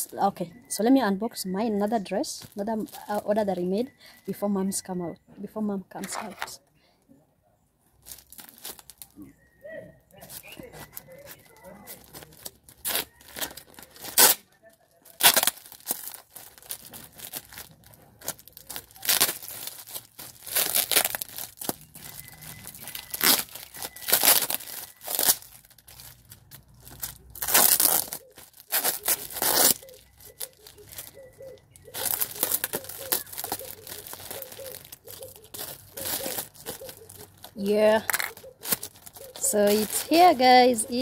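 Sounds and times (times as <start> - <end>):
packaging tearing and crinkling: 8.0 - 9.3, 10.2 - 41.0.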